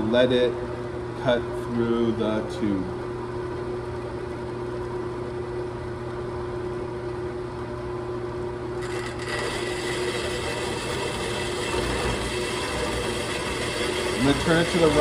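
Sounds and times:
band saw cutting metal tube: 0:08.8 - 0:15.0.

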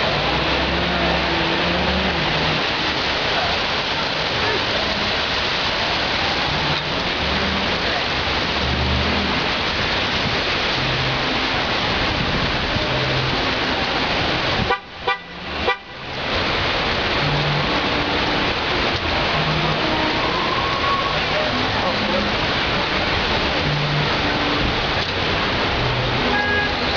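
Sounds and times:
heavy rain hissing: 0:00.0 - 0:26.9
car horn toots: 0:14.6 - 0:16.2, 0:26.2 - 0:26.9.

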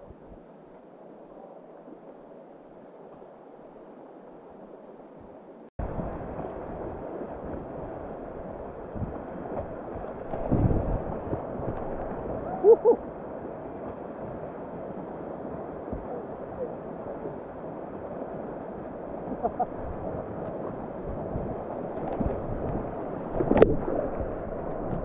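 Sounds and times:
wind buffeting microphone: 0:05.8 - 0:25.0.

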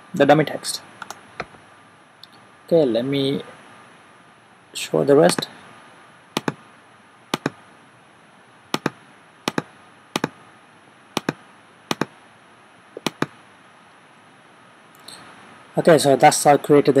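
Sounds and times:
mouse button double clicks: 0:07.4 - 0:07.6, 0:08.8 - 0:10.3, 0:11.2 - 0:12.1, 0:13.0 - 0:13.3.

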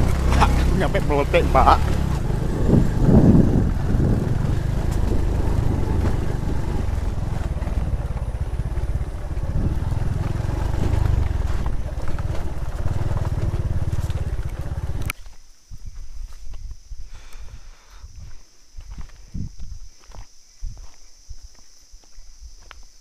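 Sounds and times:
scooter engine running: 0:00.0 - 0:15.1.

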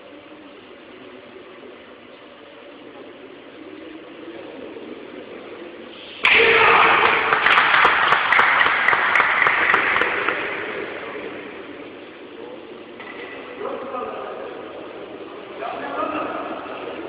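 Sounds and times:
crowd applauding and cheering: 0:06.3 - 0:10.8.

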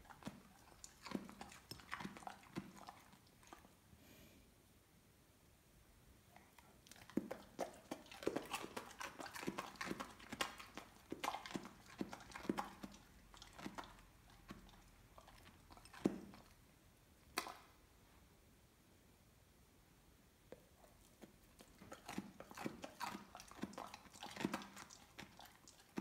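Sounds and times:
dog crunching carrot: 0:00.0 - 0:03.7, 0:06.6 - 0:16.6, 0:21.0 - 0:26.0.

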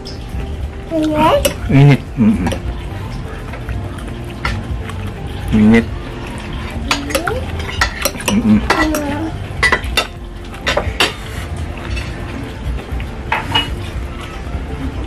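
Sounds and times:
fork and spoon clinking on glass bowl: 0:06.8 - 0:12.2, 0:13.3 - 0:13.8.

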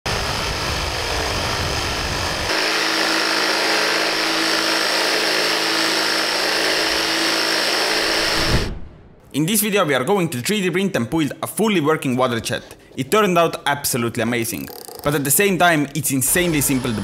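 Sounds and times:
water jet motor whine: 0:00.1 - 0:08.6.

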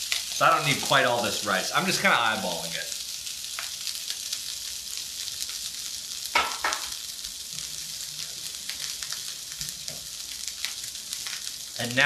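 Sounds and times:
rice sizzling in hot oil: 0:00.0 - 0:12.0
knocks: 0:06.4 - 0:06.9.

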